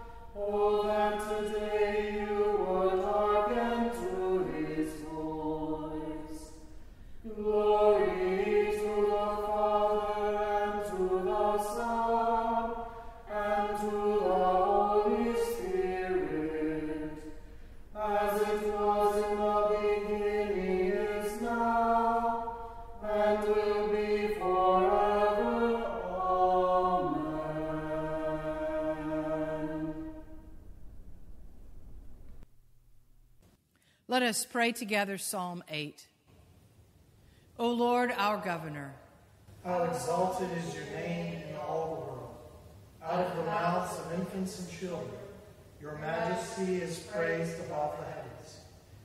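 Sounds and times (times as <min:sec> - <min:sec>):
choir singing: 0:00.0 - 0:30.7, 0:39.7 - 0:42.4, 0:43.0 - 0:45.2, 0:45.8 - 0:48.6.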